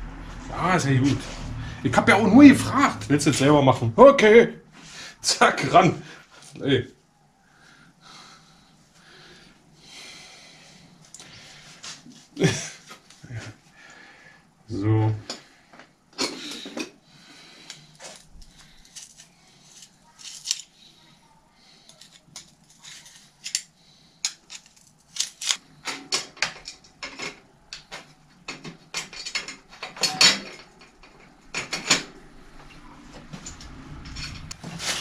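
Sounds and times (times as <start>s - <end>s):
metal tools clinking and clattering: 28.5s - 32.1s.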